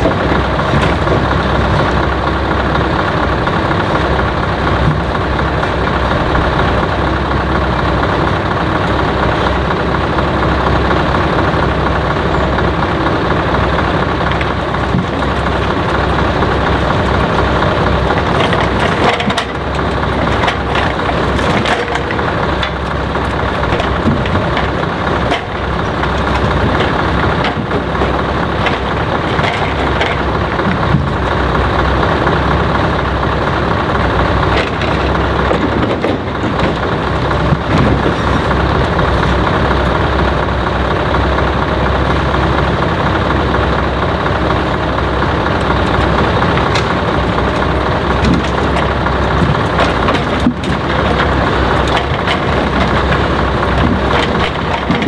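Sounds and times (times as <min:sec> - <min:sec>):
logs knocking onto load: 0:00.0 - 0:06.9, 0:12.4 - 0:31.6, 0:33.6 - 0:39.9, 0:45.6 - 0:55.0
crane loading logs: 0:00.0 - 0:55.0
truck engine running: 0:00.0 - 0:55.0.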